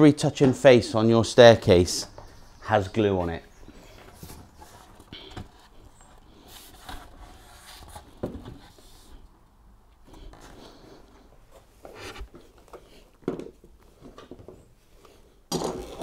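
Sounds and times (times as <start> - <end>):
wood rubbing and rustling: 0.2 - 9.2.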